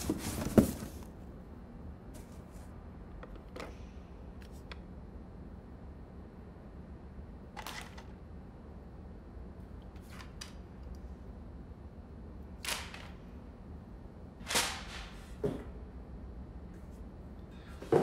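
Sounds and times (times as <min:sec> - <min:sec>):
rummaging in cardboard box: 0:00.0 - 0:01.1
low steady hum: 0:00.0 - 0:18.0.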